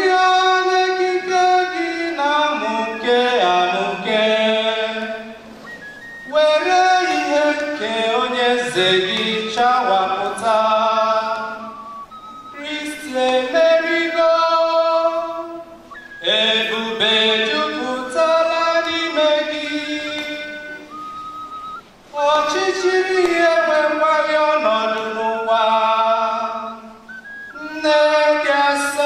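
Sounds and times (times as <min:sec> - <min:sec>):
man chanting into a microphone: 0:06.3 - 0:11.6.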